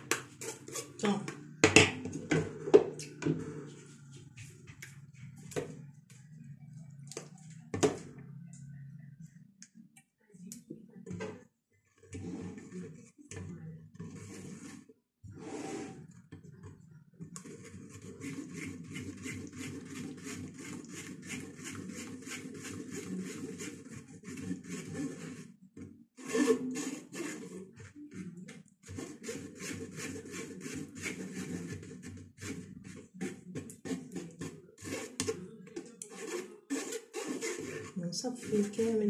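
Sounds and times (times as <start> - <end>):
spoon scraping through strainer: 0.0 - 5.6, 11.9 - 16.2, 17.3 - 25.5, 26.2 - 39.0.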